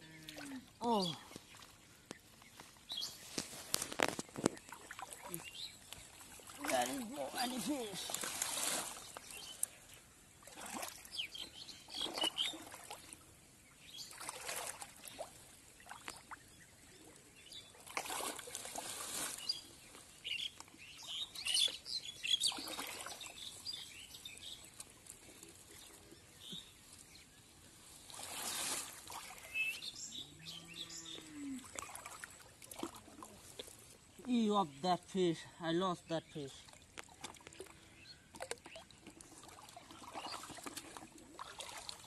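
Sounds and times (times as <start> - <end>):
splashing in muddy water: 0.0 - 13.3, 13.9 - 26.7, 28.0 - 30.0, 31.2 - 34.3, 36.5 - 42.0
small birds chirping: 0.1 - 17.9, 19.2 - 32.6.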